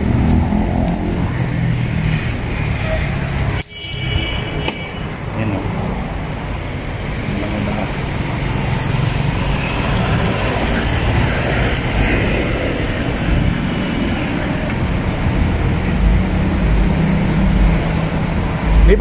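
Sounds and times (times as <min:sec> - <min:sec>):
cars and motorcycles passing: 0:00.0 - 0:19.0
wind buffeting microphone: 0:08.2 - 0:19.0.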